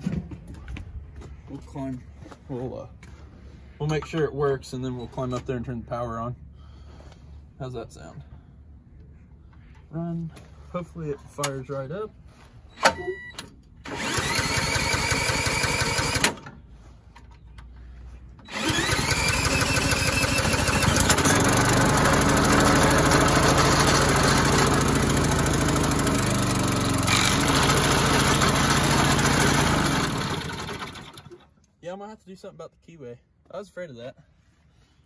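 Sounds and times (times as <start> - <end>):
cordless drill cranking engine: 13.8 - 16.5, 18.4 - 31.5
small gas engine running: 13.8 - 16.5, 18.4 - 31.5.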